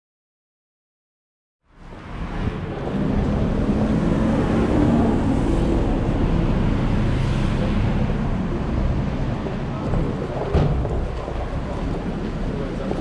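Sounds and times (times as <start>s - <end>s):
cars passing on wet road: 1.7s - 13.0s
low engine hum: 1.8s - 13.0s
tyres rushing: 2.6s - 13.0s.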